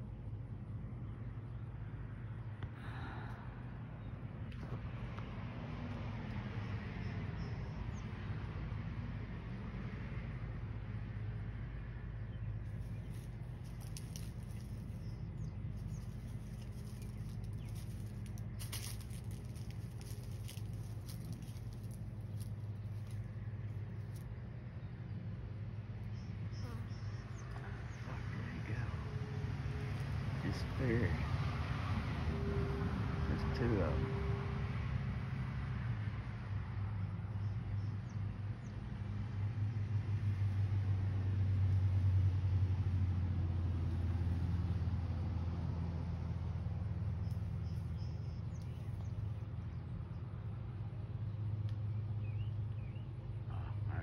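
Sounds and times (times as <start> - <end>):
light ticks and patter: 12.7 - 23.3
tyre rumble on wet road: 16.2 - 23.2.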